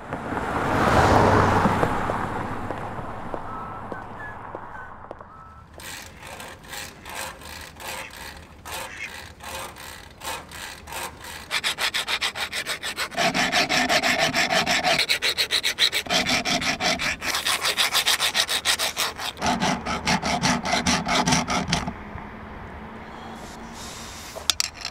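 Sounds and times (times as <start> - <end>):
rhythmic scraping strokes: 5.7 - 22.0.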